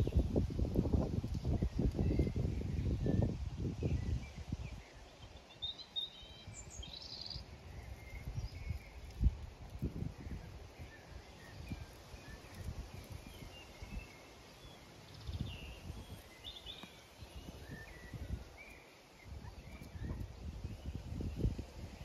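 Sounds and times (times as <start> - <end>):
faint bird chirps: 3.9 - 9.3, 10.0 - 21.6.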